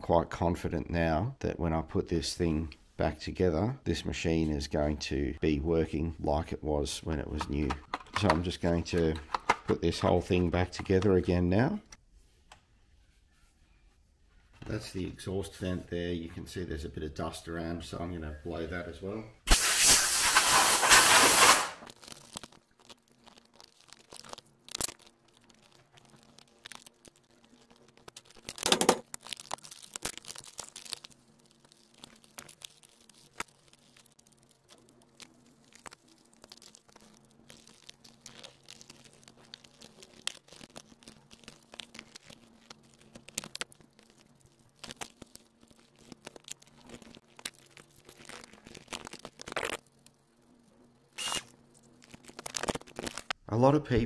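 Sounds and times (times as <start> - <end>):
plastic housing clicks and knocks: 7.4 - 9.8
compressed air hissing: 19.5 - 21.8.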